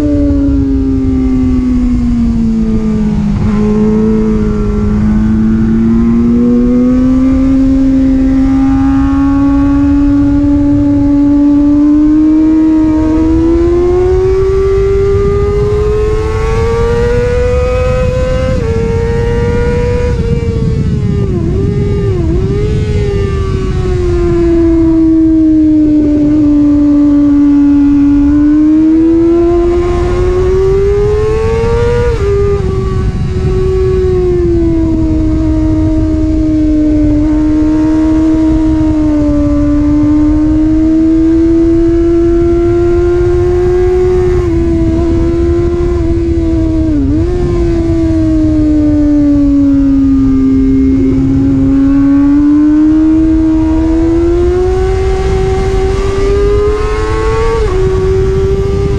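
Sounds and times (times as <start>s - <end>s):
motorcycle engine at high revs: 0.0s - 58.9s
wind rushing: 0.0s - 58.9s.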